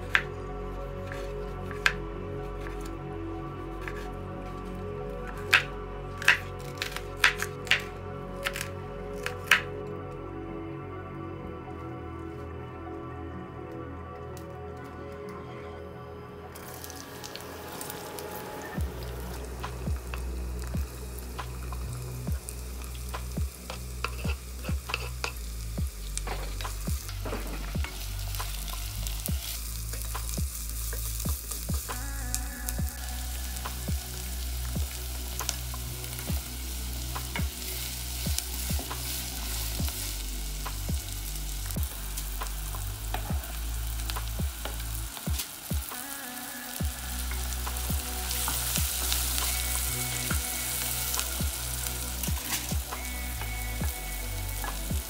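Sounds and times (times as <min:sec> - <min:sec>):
onion sizzling in hot oil: 0:00.0 - 0:09.8, 0:16.5 - 0:55.0
wooden spoon scraping pot: 0:23.7 - 0:25.4.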